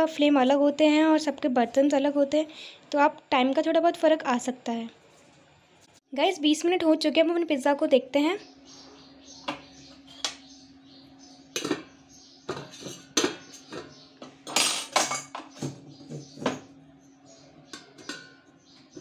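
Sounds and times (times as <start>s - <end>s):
steel kitchenware clanking: 11.5s - 16.7s, 17.6s - 19.0s.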